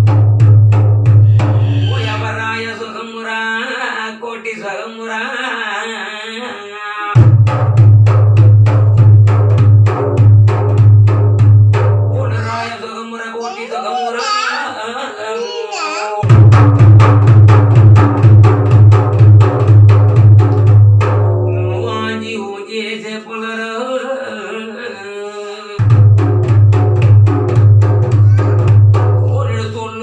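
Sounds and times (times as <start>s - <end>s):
frame drum beating: 0.0s - 2.6s, 7.2s - 12.5s, 16.2s - 22.0s, 25.8s - 29.8s
man singing a chant: 1.3s - 7.2s, 12.1s - 15.6s, 21.5s - 26.1s, 28.3s - 30.0s.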